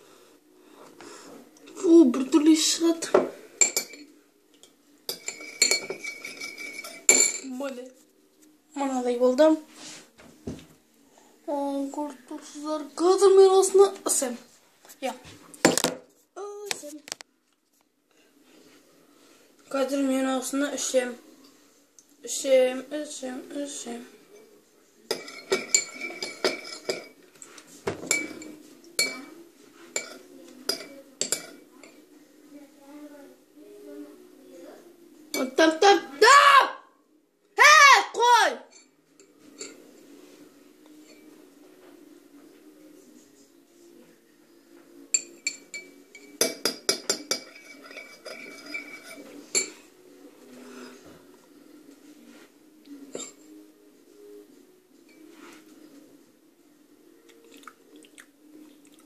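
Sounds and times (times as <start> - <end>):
teaspoon clinking in a bowl: 3.6 - 7.5, 25.1 - 27.2, 30.0 - 32.0, 45.1 - 49.8.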